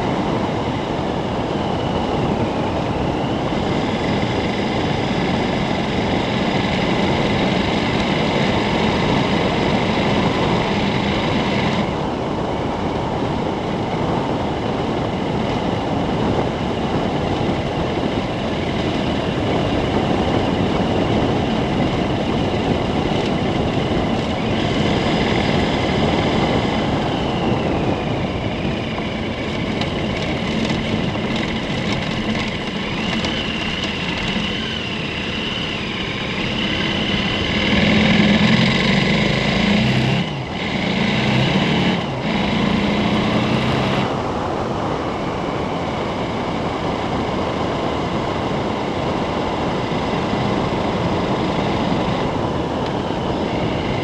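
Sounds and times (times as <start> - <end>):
motorcycle engine running: 0.0 - 54.0
wind noise: 0.0 - 54.0.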